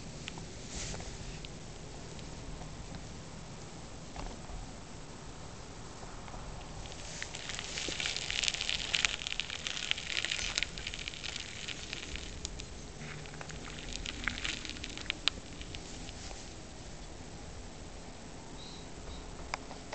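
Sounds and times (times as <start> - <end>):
animal crunching dry grass: 6.6 - 17.1.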